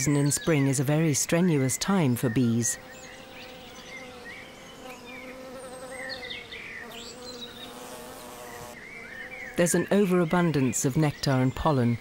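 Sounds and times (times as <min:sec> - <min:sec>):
honeybee buzzing in flight: 0:02.8 - 0:09.7.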